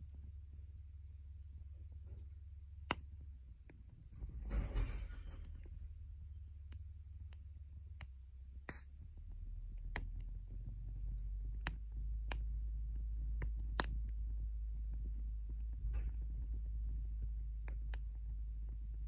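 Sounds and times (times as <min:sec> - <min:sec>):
wind rumble on microphone: 0:03.9 - 0:06.4, 0:09.0 - 0:19.0.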